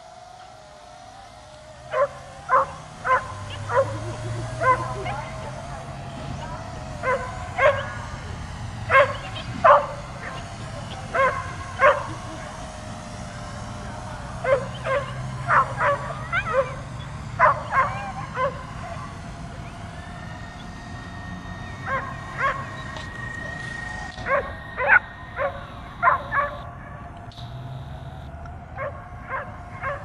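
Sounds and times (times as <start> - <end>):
dog barking: 1.9 - 5.4, 7.0 - 8.2, 8.8 - 12.4, 14.4 - 16.8, 17.4 - 19.0, 21.9 - 22.6, 24.2 - 26.7, 28.8 - 30.0.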